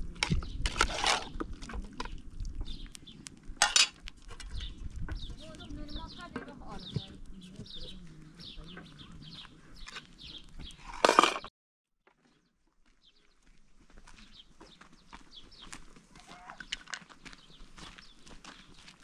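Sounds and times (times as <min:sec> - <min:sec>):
small bird chirping: 0:04.4 - 0:10.8.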